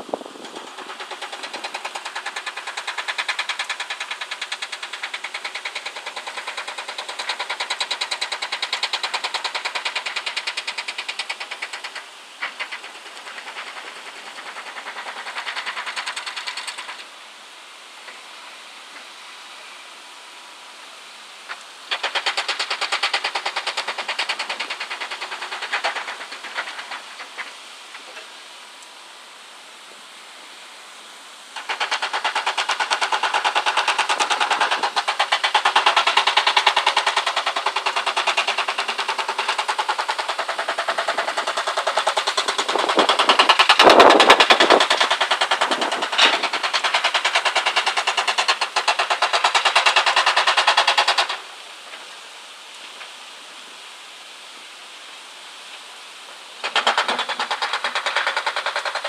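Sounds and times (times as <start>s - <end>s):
excavator rhythmic clatter: 0.4s - 17.1s, 21.5s - 28.3s, 31.6s - 51.4s, 56.6s - 59.0s.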